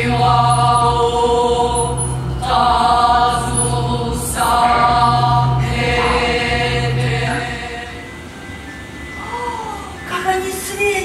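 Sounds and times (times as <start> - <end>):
choir-like chanting: 0.0 - 8.3
low drone: 0.0 - 10.1.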